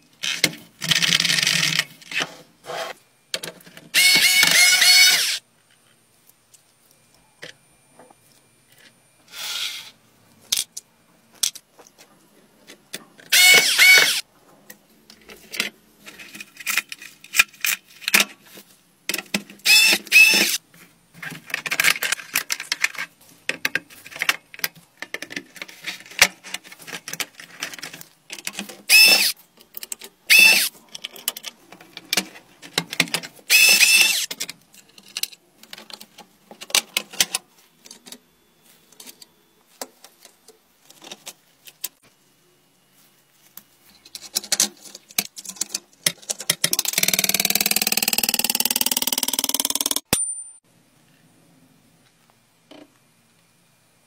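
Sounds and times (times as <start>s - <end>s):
plastic parts clicking and scraping: 0.0s - 42.1s, 43.5s - 50.1s
screwdriver turning screws: 3.9s - 5.4s, 13.3s - 14.2s, 19.6s - 20.6s, 28.9s - 29.4s, 30.3s - 30.7s, 33.5s - 34.4s, 46.5s - 50.1s.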